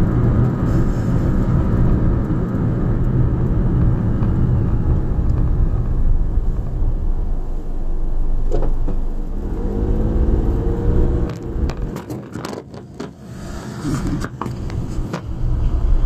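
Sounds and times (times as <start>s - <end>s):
car engine and road rumble: 0.0s - 16.0s
knocks and rattles: 11.2s - 13.2s.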